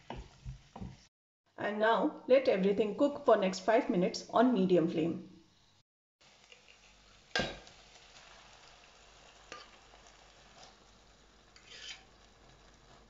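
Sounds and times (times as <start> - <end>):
food sizzling in a pan: 0.0 - 1.1, 5.7 - 13.0.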